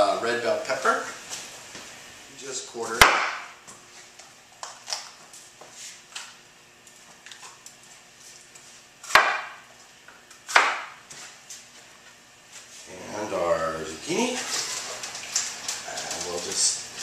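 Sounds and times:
knife chopping on board: 3.0s - 3.4s, 9.0s - 9.6s, 10.4s - 11.0s.

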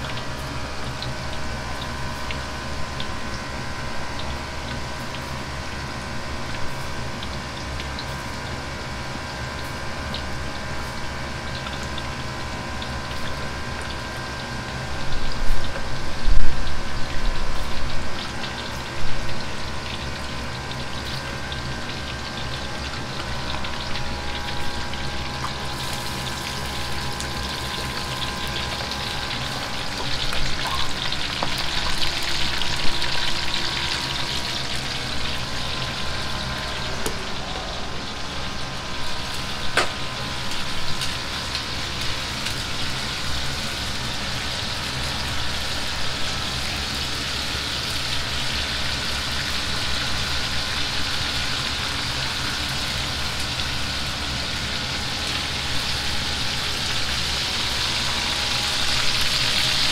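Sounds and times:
food deep-frying in oil: 0.0s - 59.9s
low hum: 8.8s - 47.0s.

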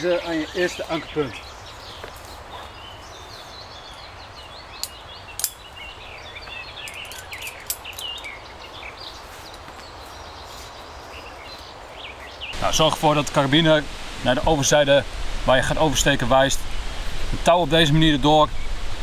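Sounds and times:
small birds chirping: 0.0s - 14.9s
outdoor background noise: 0.0s - 19.0s.

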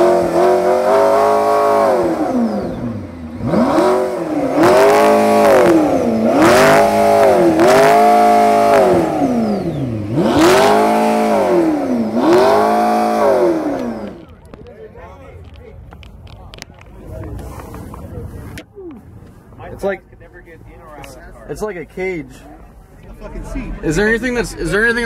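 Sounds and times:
car engine revving: 0.0s - 14.6s.

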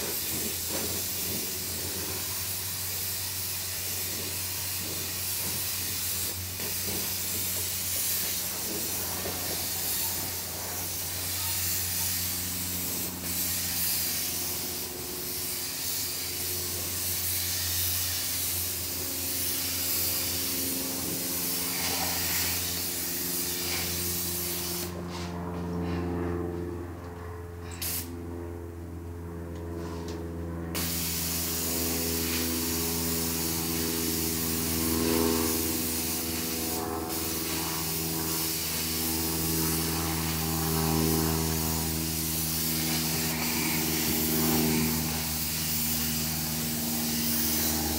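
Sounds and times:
paint spray gun hissing: 0.0s - 25.0s, 30.8s - 40.4s, 41.4s - 47.9s
low motor hum: 18.5s - 47.9s.

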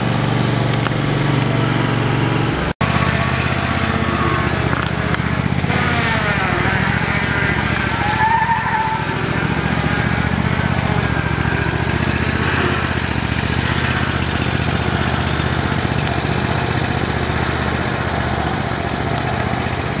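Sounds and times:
lawn mower engine running: 0.0s - 20.0s.

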